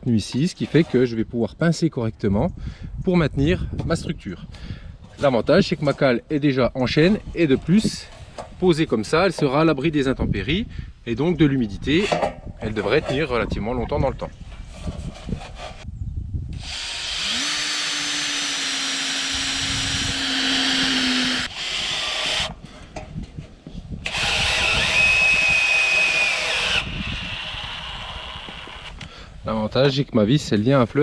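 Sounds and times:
cordless drill whining: 16.6 - 22.6, 24.0 - 29.1.

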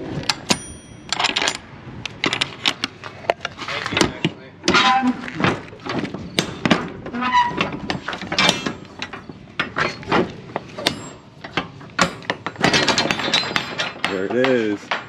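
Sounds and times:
metal door latches clanking: 4.0 - 15.0.

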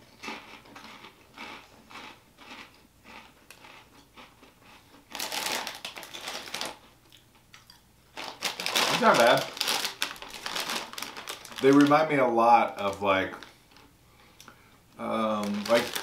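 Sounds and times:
chips being chewed: 0.2 - 11.8, 15.3 - 16.0
plastic bag crinkling: 5.1 - 6.9, 8.1 - 13.9, 15.0 - 16.0.

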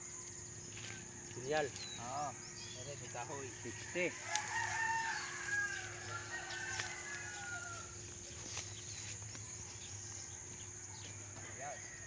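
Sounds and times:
rooster crowing: 3.5 - 8.3, 10.4 - 12.0.

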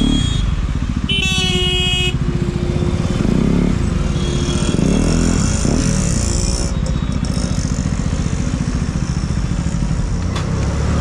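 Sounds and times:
vehicle horn: 0.0 - 2.3, 4.0 - 5.8
motorcycle engine running: 0.0 - 11.0.

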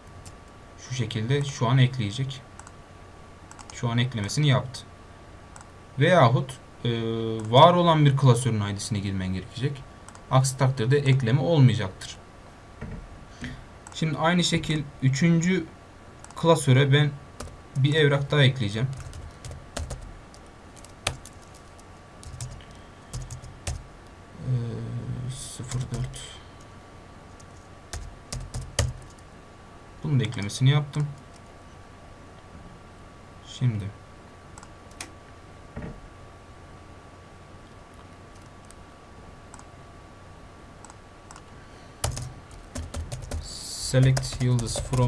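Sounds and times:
typing on computer keyboard: 18.9 - 20.0, 20.8 - 23.8, 27.4 - 29.2, 42.0 - 45.0.

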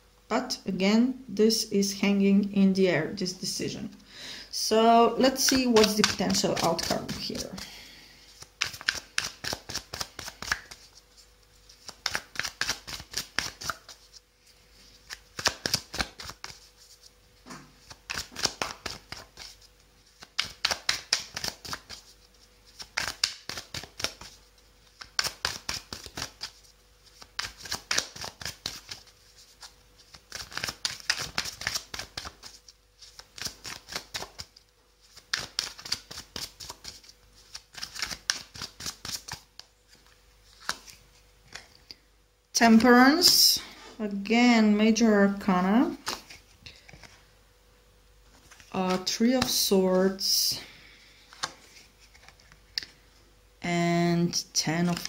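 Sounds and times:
cards being shuffled: 5.2 - 14.2, 14.8 - 41.8, 45.9 - 47.2, 48.3 - 49.7, 51.3 - 52.9, 54.8 - 55.0.

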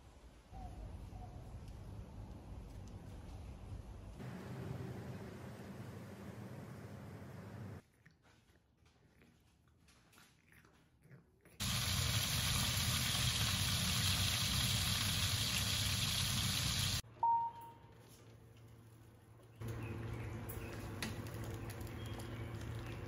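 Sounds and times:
low steady hum: 0.6 - 7.9
meat sizzling in hot grease: 11.6 - 17.0
short beep: 17.1 - 17.8.

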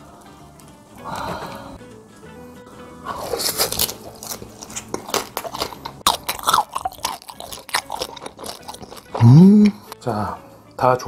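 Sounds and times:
crunchy chewing of crispy skin: 3.0 - 10.0.

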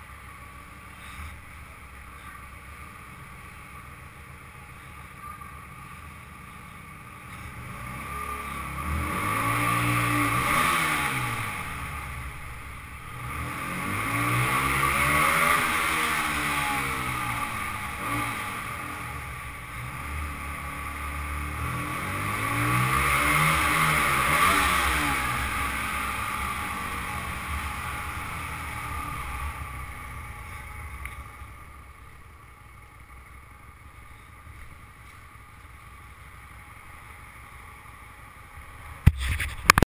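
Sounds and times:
motorcycle engine revving: 7.3 - 35.2.

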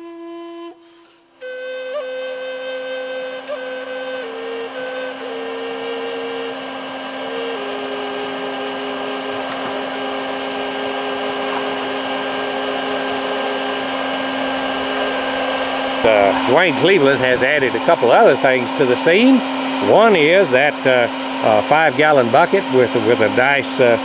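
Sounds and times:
whistling tone: 0.0 - 6.6
shop vacuum running: 0.0 - 24.0.

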